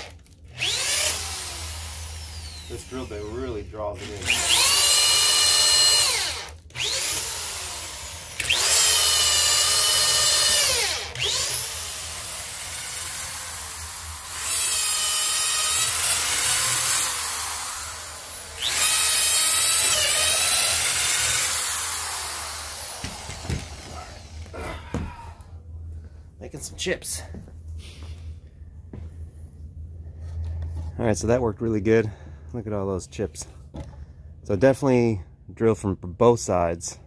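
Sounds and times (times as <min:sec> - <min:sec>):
drill motor whining: 0:00.0 - 0:25.2.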